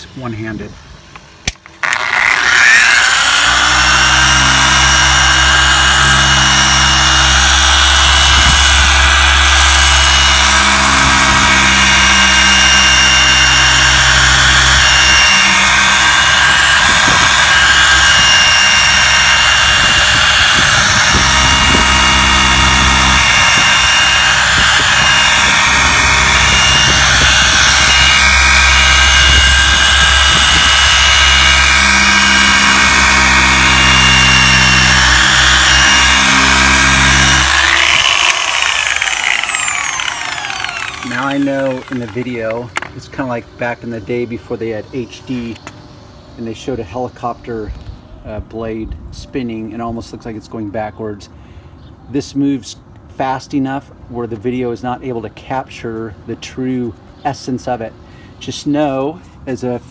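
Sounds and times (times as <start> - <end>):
polisher motor whining: 1.8 - 42.9.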